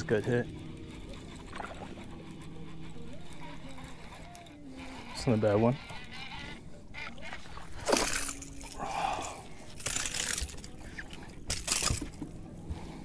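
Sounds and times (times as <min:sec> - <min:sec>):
fish splashing at water surface: 0:07.7 - 0:08.8.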